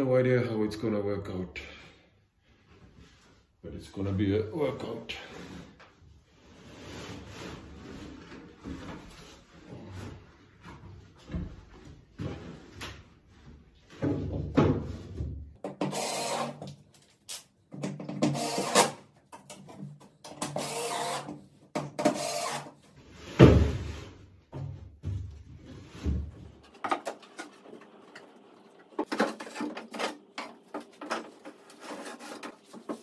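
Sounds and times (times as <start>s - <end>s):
drill driving screws whirring: 15.8s - 16.7s, 18.3s - 19.0s, 20.5s - 21.3s, 22.1s - 22.7s.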